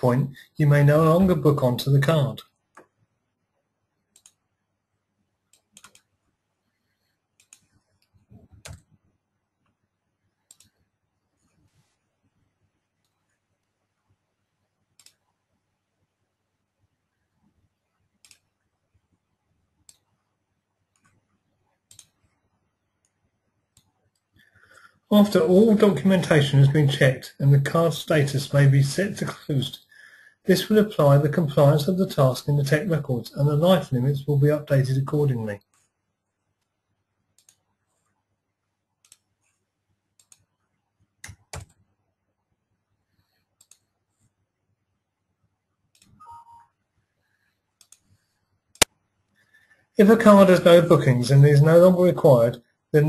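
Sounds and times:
faint computer mouse clicks: 4.1 - 4.4, 5.5 - 6.1, 7.4 - 8.9, 10.5 - 10.8, 15.0 - 15.2, 18.2 - 18.5, 21.9 - 22.2, 37.4 - 37.6, 39.0 - 39.3, 43.6 - 43.9, 47.8 - 48.2.

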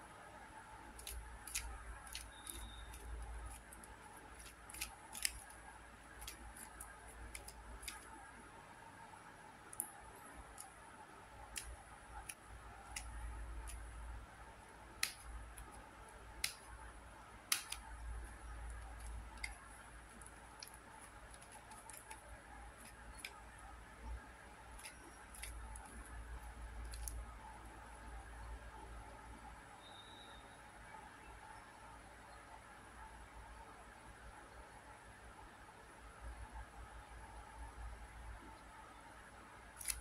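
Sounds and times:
plastic puzzle clicking and clacking: 0.8 - 8.2, 11.5 - 13.9, 17.5 - 23.7, 24.7 - 27.3, 39.8 - 40.0.

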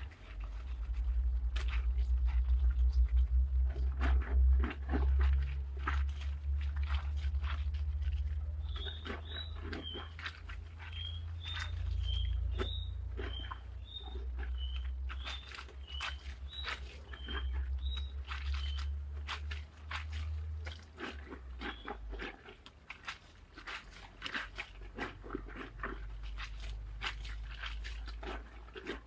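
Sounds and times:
clothes hand-washed in water: 0.0 - 29.0
water splashing and sloshing: 0.0 - 29.0
bird chirping: 8.2 - 19.3, 21.6 - 22.3.

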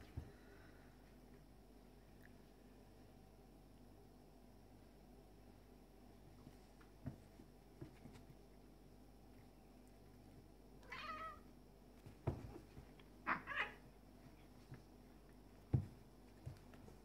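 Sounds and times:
bodies thumping on floor: 12.0 - 12.9, 15.6 - 17.0
cats yowling: 13.2 - 13.8.

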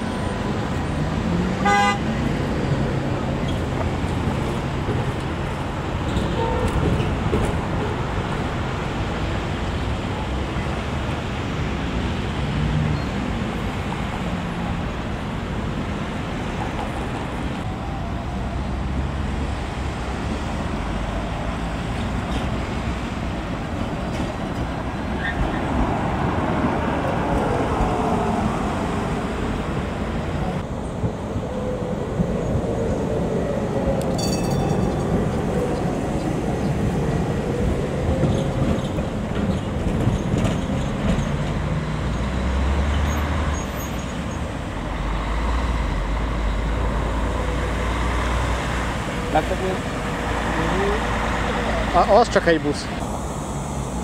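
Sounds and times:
tram whine: 0.0 - 52.2
tram rumbling on rails: 0.0 - 54.0.

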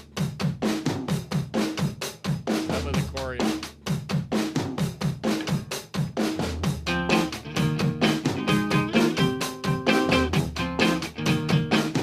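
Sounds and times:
drum kit fast beat: 0.0 - 12.0
bass line: 2.6 - 3.6, 6.6 - 12.0.

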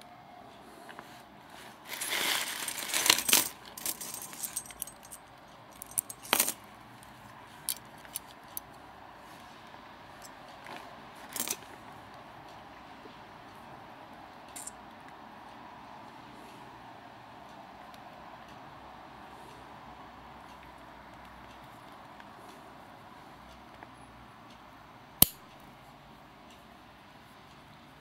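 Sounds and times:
scuffling: 1.6 - 5.1
carabiners clinking and clicking: 1.8 - 6.7, 7.6 - 8.7, 10.2 - 11.7, 14.5 - 14.8.

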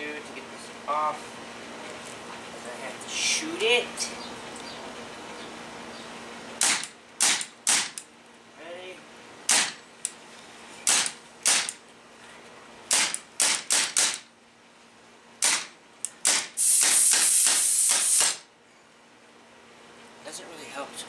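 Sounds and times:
paintball gun shots: 6.6 - 8.0, 9.5 - 9.8, 10.9 - 11.8, 12.9 - 14.3, 15.4 - 18.4.

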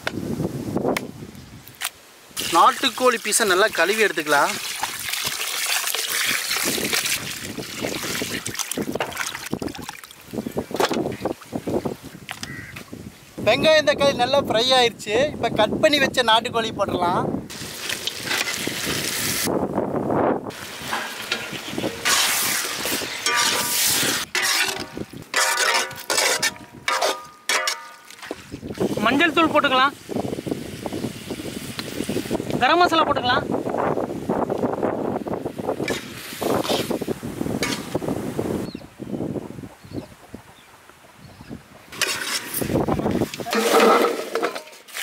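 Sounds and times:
water pouring into metal bowl: 2.4 - 10.1
hands sloshing chicken in water: 4.5 - 10.2
chicken sizzling in hot oil: 17.5 - 19.5, 20.5 - 24.6
metal ladle scraping pan: 20.6 - 28.4, 35.8 - 36.9, 37.6 - 38.0, 41.9 - 42.8, 43.4 - 45.0.

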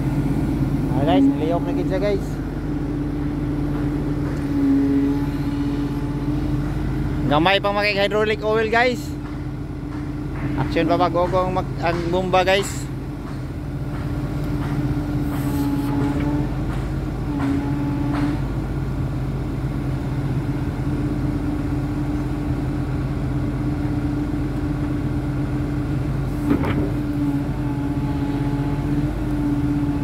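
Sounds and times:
excavator running: 0.0 - 30.0
hydraulic pump drone: 0.0 - 30.0.

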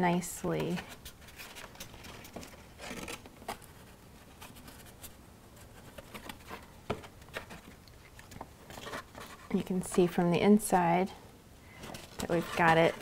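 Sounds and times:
cardstock rustling and scraping: 0.5 - 10.2, 11.8 - 13.0.

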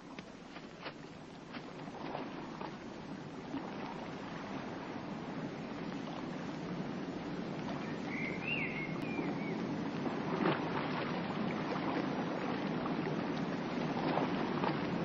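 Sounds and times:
river rushing: 0.0 - 15.0
bird chirp: 7.8 - 9.7.

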